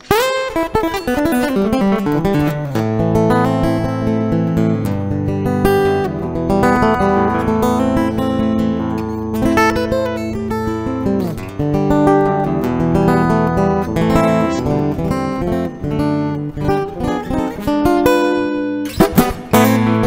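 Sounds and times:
guitar plucked and strummed: 0:00.0 - 0:20.0.

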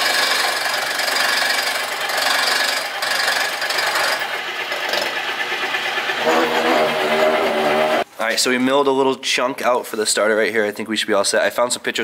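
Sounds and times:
milling machine cutting metal: 0:00.0 - 0:08.0.

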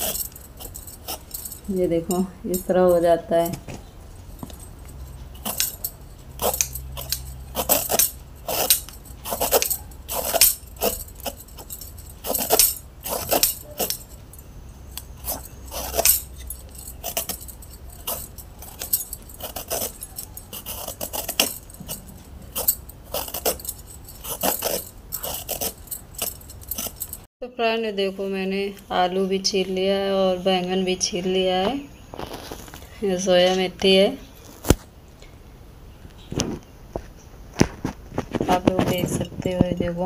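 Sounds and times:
vegetable peeler scraping skin: 0:05.3 - 0:14.1, 0:14.9 - 0:26.1.

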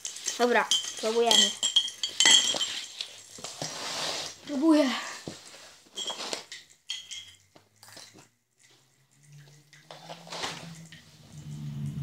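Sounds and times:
teaspoon clinking against glass mug: 0:00.0 - 0:03.3, 0:06.0 - 0:11.0.

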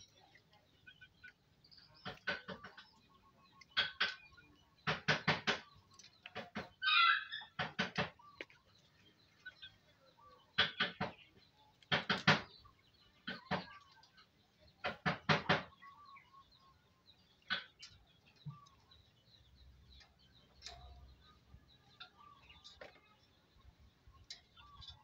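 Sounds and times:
myna bird clicks and knocks: 0:01.2 - 0:06.8, 0:07.4 - 0:08.6, 0:10.5 - 0:15.9, 0:17.4 - 0:18.8.

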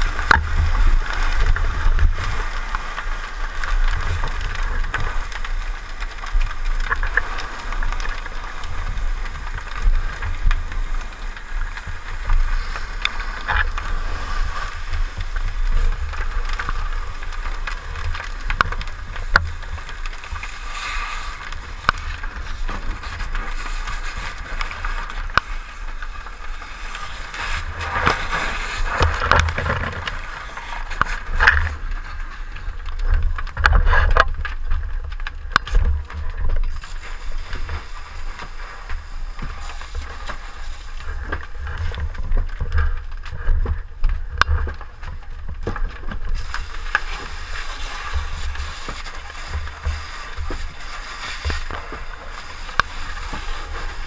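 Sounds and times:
fire hose water jet hissing: 0:00.0 - 0:31.8, 0:36.7 - 0:42.3, 0:46.3 - 0:54.0
sharp cracks: 0:00.0 - 0:54.0.

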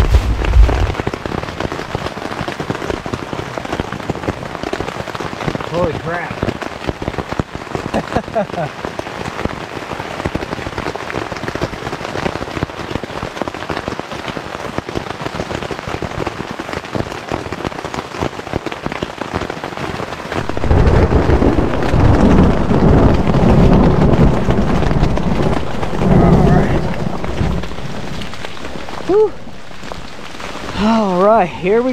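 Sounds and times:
thunder rumbling: 0:00.0 - 0:02.1, 0:20.4 - 0:31.9
freezing rain ticking on tent: 0:00.0 - 0:31.9.

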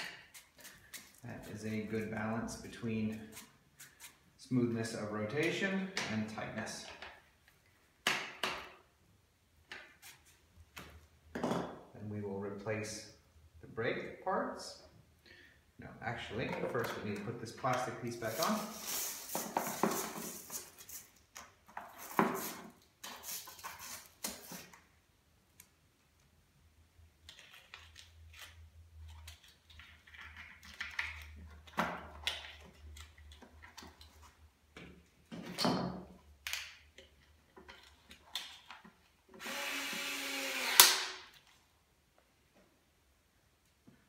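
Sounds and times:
cordless screwdriver running: 0:39.4 - 0:41.1.

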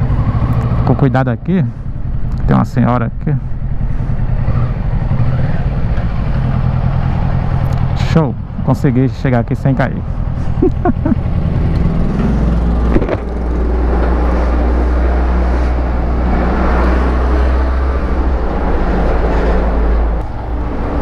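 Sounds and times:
motorcycle engine at low revs: 0:00.0 - 0:08.0, 0:10.0 - 0:16.3.

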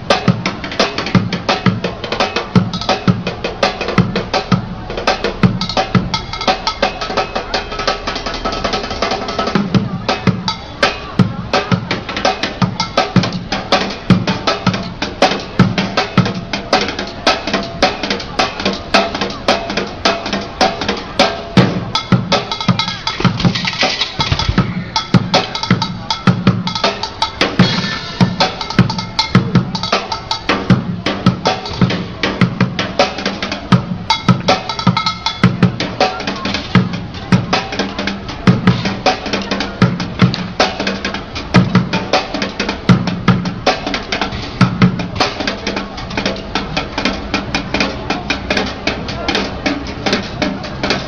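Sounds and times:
drumming on plastic buckets: 0:00.0 - 0:51.0.

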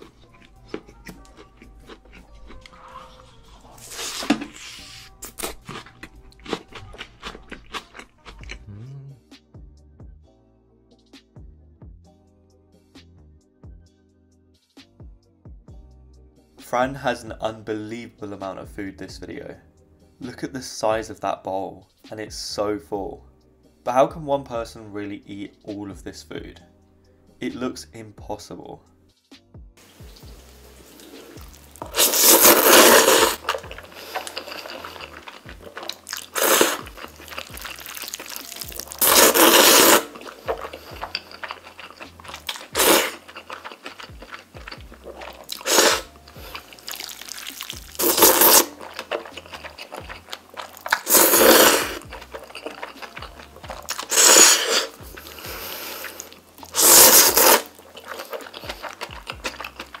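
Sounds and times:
loud pasta slurping: 0:00.0 - 0:08.6, 0:30.9 - 1:00.0
quiet chewing: 0:00.0 - 0:09.0, 0:30.0 - 1:00.0.

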